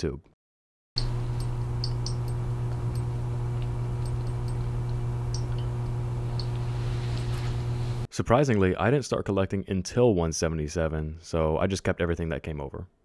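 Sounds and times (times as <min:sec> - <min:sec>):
low electrical hum: 0:01.0 - 0:08.1.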